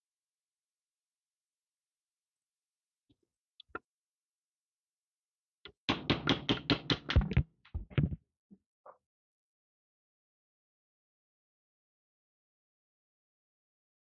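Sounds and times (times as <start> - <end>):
sharp metal knocks: 5.7 - 7.4.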